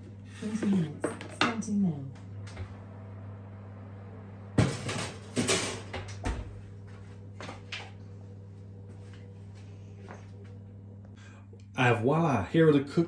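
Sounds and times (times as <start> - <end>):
metal tray clattering: 4.6 - 5.9.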